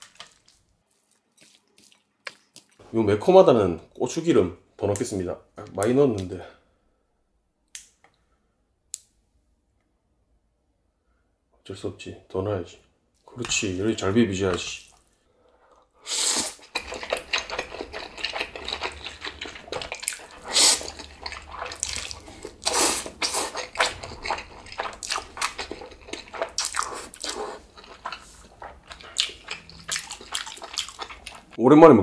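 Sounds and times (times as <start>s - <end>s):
noodles squelching: 0.0s - 2.8s, 16.3s - 31.6s
slurping: 15.7s - 31.6s.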